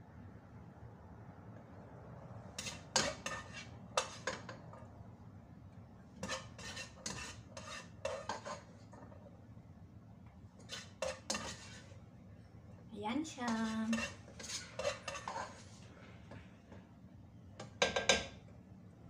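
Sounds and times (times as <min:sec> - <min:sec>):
utensil scraping a cooking pot: 0:02.5 - 0:04.8, 0:06.2 - 0:09.3, 0:10.6 - 0:12.0, 0:13.4 - 0:16.8.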